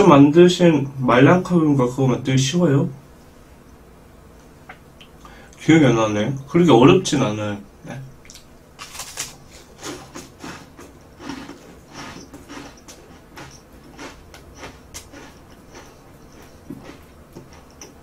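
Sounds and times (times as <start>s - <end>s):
bite into crispy bread: 8.3s - 17.0s
crisp chewing crunches: 8.3s - 17.9s.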